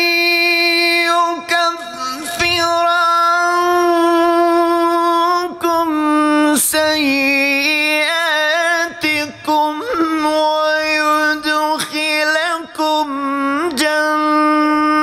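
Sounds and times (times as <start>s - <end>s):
man reciting melodically: 0.0s - 15.0s.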